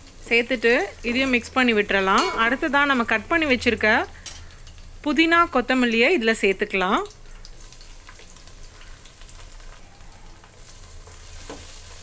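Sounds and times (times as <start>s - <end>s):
onions sizzling in hot oil: 0.0s - 12.0s
faint crackles: 7.0s - 12.0s.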